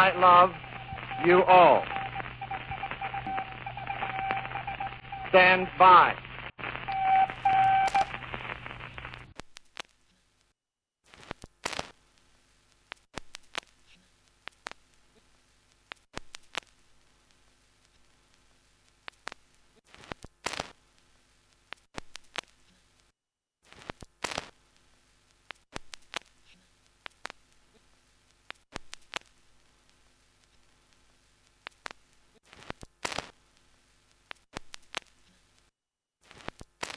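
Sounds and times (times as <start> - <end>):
crackling static: 0.0 - 10.5, 11.1 - 36.9.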